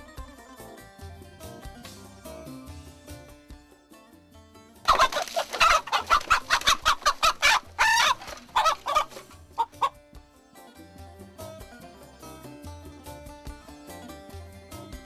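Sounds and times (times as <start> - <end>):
hen squawking in alarm: 4.9 - 9.9.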